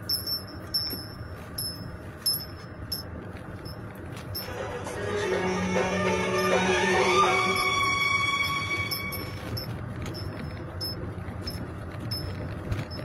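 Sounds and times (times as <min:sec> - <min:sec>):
chime-like tinkling: 0:00.0 - 0:03.8, 0:07.4 - 0:13.0
low steady rumble: 0:00.0 - 0:13.0
background music: 0:04.4 - 0:09.7.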